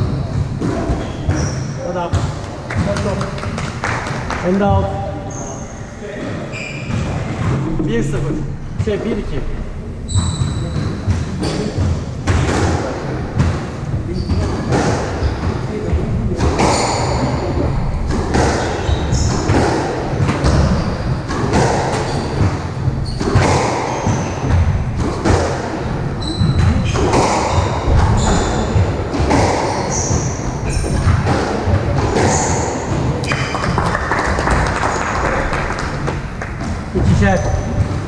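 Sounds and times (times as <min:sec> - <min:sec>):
shoes squeaking on wooden floor: 0:00.0 - 0:02.4, 0:05.2 - 0:07.6, 0:10.1 - 0:12.1, 0:14.1 - 0:33.6.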